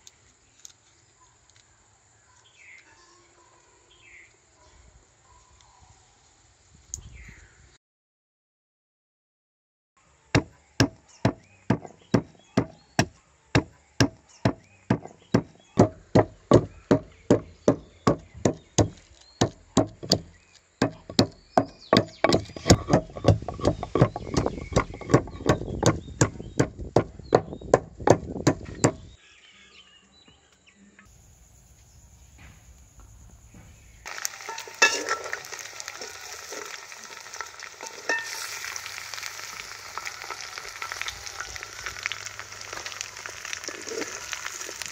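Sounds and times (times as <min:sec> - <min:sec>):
pestle pounding in wooden mortar: 0:10.4 - 0:29.1
chicken sizzling in a wok: 0:34.0 - 0:44.9
metal spatula stirring in wok: 0:34.5 - 0:36.8.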